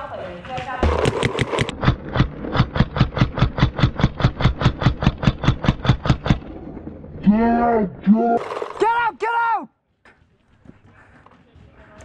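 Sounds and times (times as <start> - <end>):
paintball marker firing rapidly: 0.8 - 6.3.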